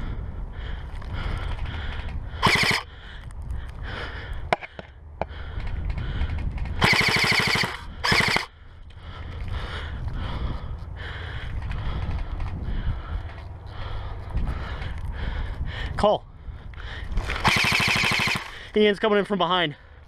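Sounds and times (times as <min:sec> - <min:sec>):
airsoft rifle firing bursts: 0:02.4 - 0:02.9, 0:06.8 - 0:08.5, 0:17.4 - 0:18.6.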